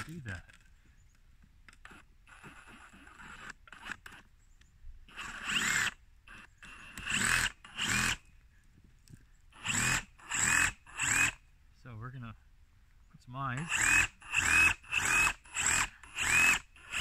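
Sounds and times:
power drill boring into pumpkin: 0:01.8 - 0:04.3, 0:05.1 - 0:08.2, 0:09.5 - 0:11.4, 0:13.6 - 0:17.0.

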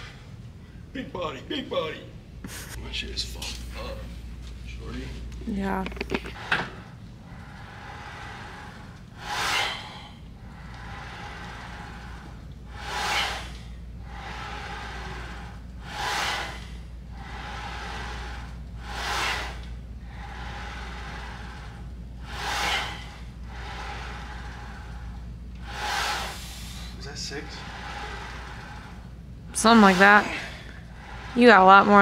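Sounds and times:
steady low hum: 0:00.0 - 0:32.0
man breathing forcefully: 0:06.2 - 0:32.0.

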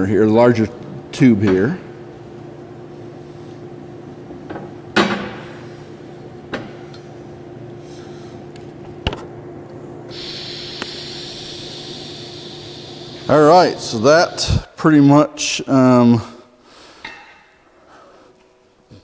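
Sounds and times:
welding electrical hum: 0:08.8 - 0:14.8
loud hiss: 0:10.1 - 0:14.6.

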